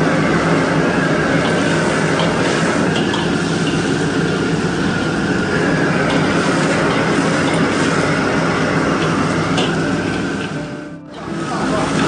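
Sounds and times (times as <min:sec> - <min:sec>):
meat stir-frying in wok: 0:00.0 - 0:12.0
stove burner roaring: 0:00.0 - 0:12.0.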